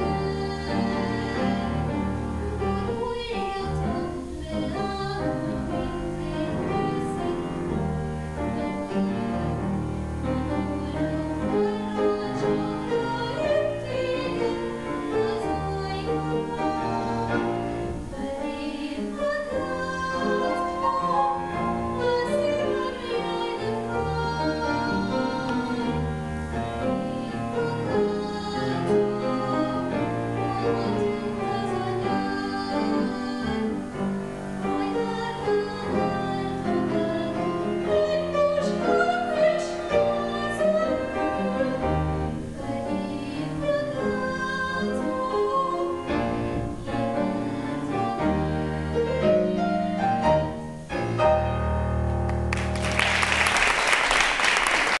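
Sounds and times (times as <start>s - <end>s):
person singing with instruments: 0.0s - 51.6s
audience applause: 52.3s - 55.0s.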